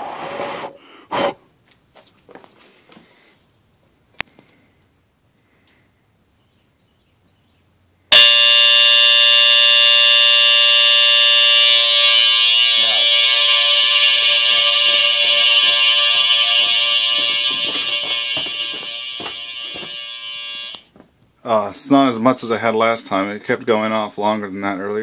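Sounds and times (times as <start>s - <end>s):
smoke detector alarm: 8.1s - 20.8s.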